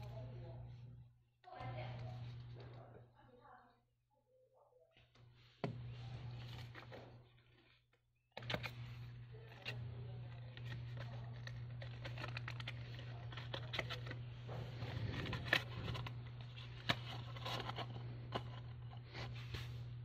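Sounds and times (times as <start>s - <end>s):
steady low hum: 0.0s - 3.2s, 5.1s - 20.0s
stiff paper rustling and crackling: 8.4s - 19.9s.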